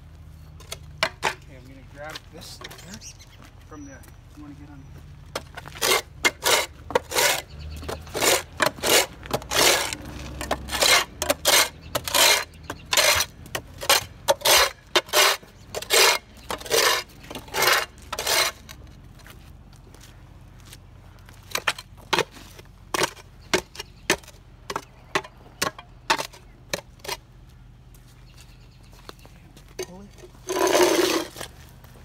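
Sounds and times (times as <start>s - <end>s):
scraper blade scraping gravel: 5.5s - 18.9s, 29.9s - 31.8s.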